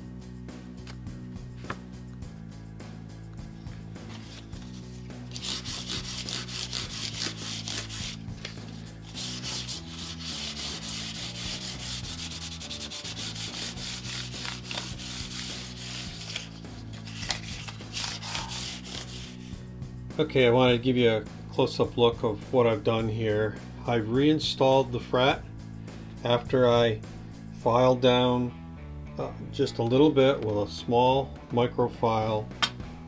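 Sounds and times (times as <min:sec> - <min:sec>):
sandpaper rubbing on frets: 0:04.0 - 0:19.6.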